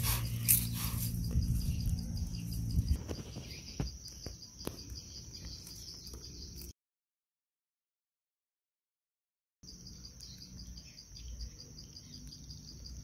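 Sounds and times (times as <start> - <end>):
insects trilling: 0.0 - 6.7, 9.6 - 13.0.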